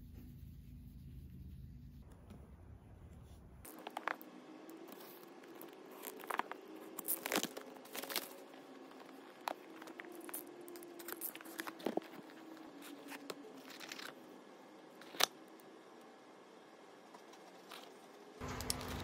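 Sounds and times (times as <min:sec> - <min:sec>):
cardboard rustling and scraping: 0:04.9 - 0:14.2.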